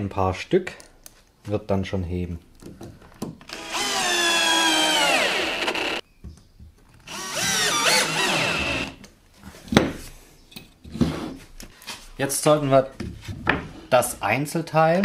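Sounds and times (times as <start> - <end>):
drill driving screws into plywood: 3.4 - 6.0, 7.0 - 9.0.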